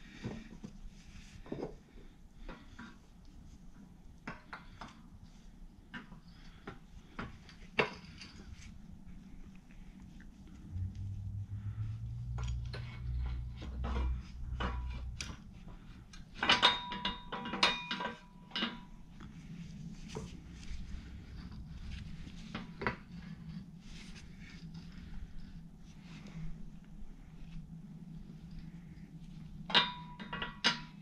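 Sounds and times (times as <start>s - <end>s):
low rumble: 8.5s - 16.4s, 19.0s - 29.6s
metal parts clinking and knocking: 16.2s - 19.1s, 29.7s - 31.0s.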